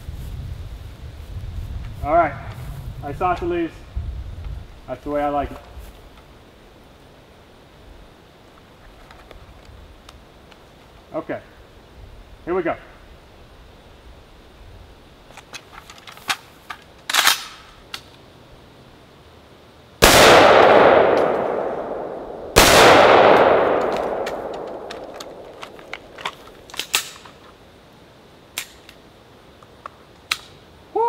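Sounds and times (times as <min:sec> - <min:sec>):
rifle and gear handling clicks: 0:15.3 - 0:18.2, 0:23.3 - 0:27.6
rifle shots: 0:20.0 - 0:26.2.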